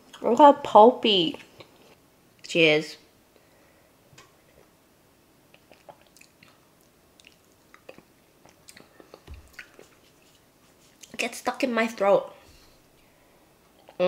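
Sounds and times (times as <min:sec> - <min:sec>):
drinking and swallowing: 0:05.5 - 0:06.6.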